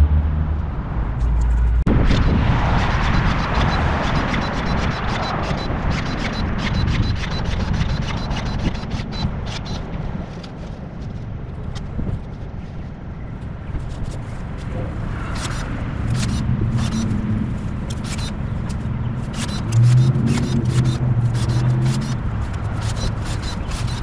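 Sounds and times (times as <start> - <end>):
car passing rumble: 0.0 - 8.6, 13.5 - 23.4.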